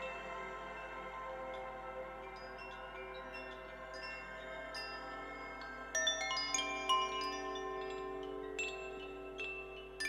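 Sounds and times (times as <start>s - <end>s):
wind chimes ringing: 2.4s - 10.0s.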